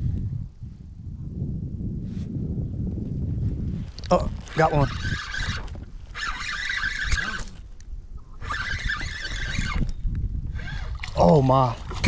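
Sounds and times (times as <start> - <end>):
spinning reel whirring: 4.5 - 7.7, 8.4 - 11.0.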